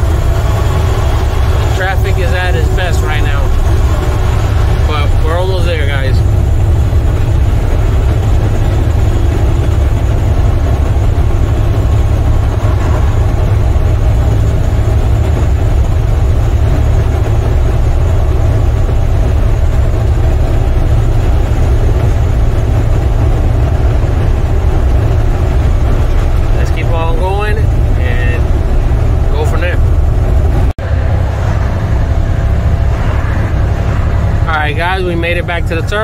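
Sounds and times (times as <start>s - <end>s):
road and tyre noise: 0.0s - 36.0s
truck diesel engine drone: 0.0s - 36.0s.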